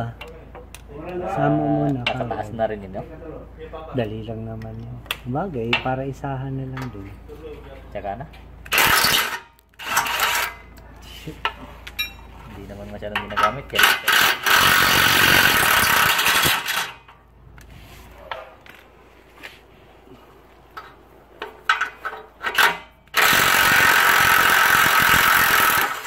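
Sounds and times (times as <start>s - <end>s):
impact wrench hammering: 8.6s - 10.6s, 13.4s - 17.1s, 21.4s - 26.0s.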